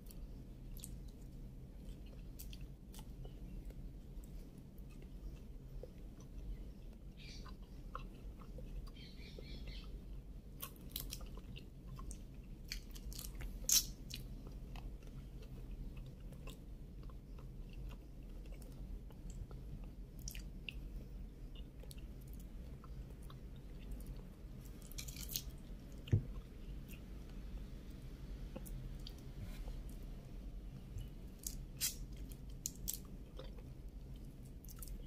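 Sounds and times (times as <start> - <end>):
person chewing: 7.4 - 9.0, 31.0 - 35.0.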